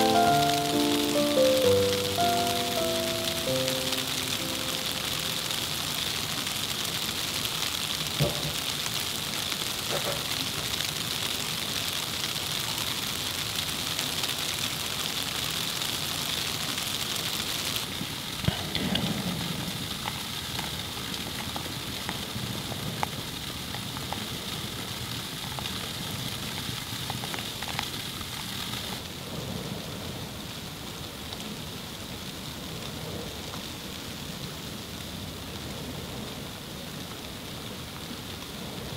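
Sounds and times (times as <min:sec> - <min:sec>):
wet snow hissing and pattering: 0:00.0 - 0:29.0.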